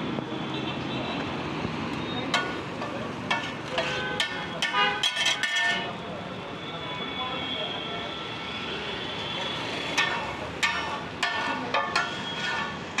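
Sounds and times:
street stall background: 0.0s - 13.0s
spatula clanging on griddle: 2.3s - 6.0s, 9.8s - 13.0s.

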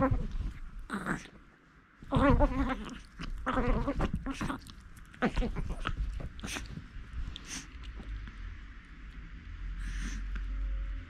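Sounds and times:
puppy play growling: 0.0s - 9.1s, 9.7s - 10.8s
puppy snuffling and scuffling: 2.0s - 8.6s.

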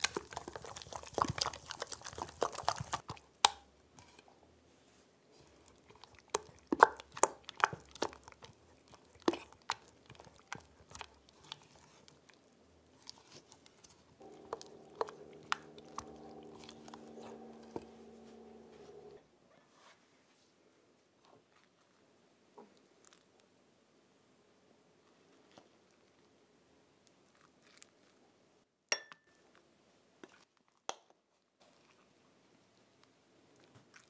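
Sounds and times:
spatula stirring thick cream: 0.0s - 4.3s, 5.4s - 19.1s
low hum: 14.2s - 19.2s.

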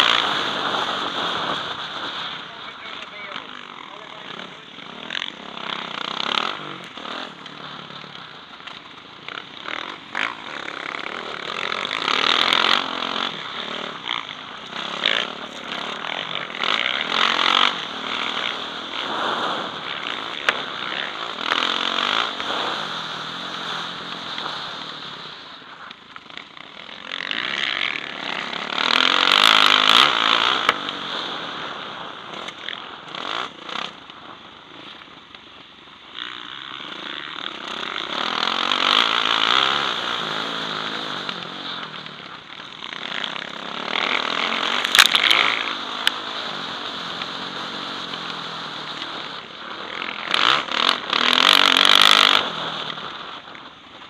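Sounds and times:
motorbike engine revving: 0.0s - 35.0s, 36.1s - 54.0s.

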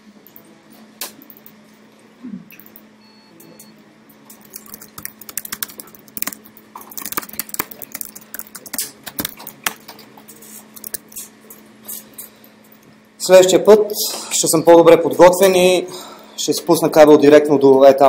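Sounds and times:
faint steady hum: 0.0s - 18.0s
typing on keyboard: 4.4s - 10.0s.

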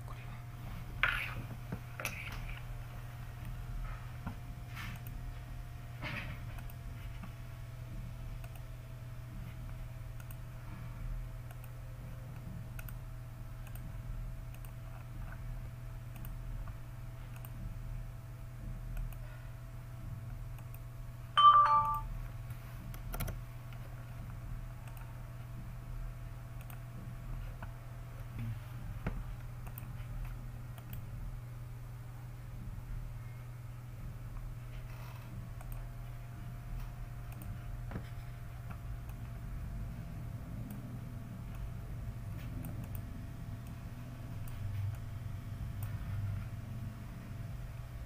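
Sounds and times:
steady electrical hum: 0.0s - 48.0s
computer mouse clicks: 2.0s - 2.7s, 6.6s - 7.4s, 8.4s - 8.7s, 9.7s - 10.4s, 11.4s - 13.0s, 13.6s - 15.4s, 16.1s - 17.7s, 18.9s - 19.2s, 20.5s - 20.9s, 22.9s - 23.8s, 24.8s - 25.2s, 26.6s - 26.9s, 29.4s - 31.1s, 34.8s - 35.9s, 36.8s - 39.3s, 42.3s - 43.8s
two-note computer chime: 21.4s - 22.1s.

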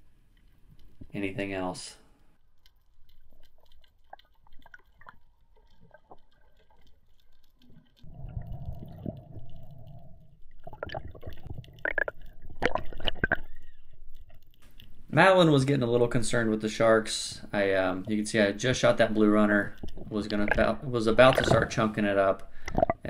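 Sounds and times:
faint underwater clicks and taps: 0.3s - 1.2s, 2.6s - 15.1s, 19.1s - 23.0s
rushing and bubbling water: 7.6s - 13.6s.

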